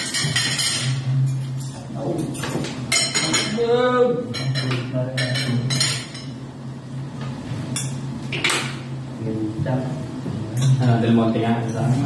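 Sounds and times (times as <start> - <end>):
cutlery clinking on plates: 0.0 - 3.6.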